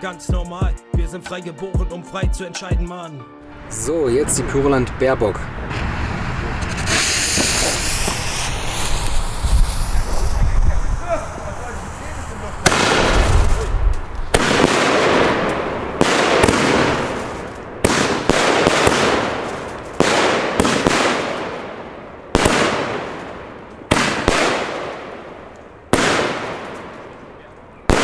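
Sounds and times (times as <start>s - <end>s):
rush of crackling noise: 4.4s - 28.0s
firework shots sharp reports: 5.6s - 28.0s.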